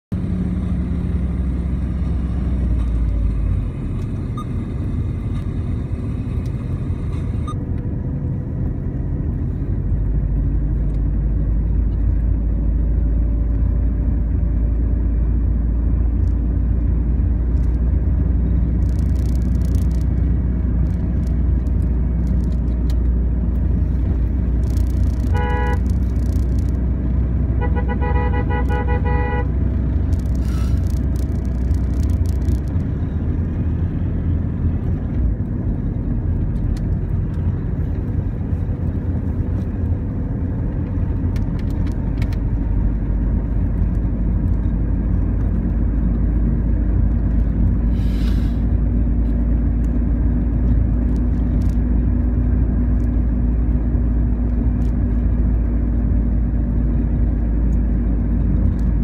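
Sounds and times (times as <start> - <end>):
car engine and road rumble: 0.0 - 59.0
car horn honking: 25.2 - 25.9, 27.5 - 29.6.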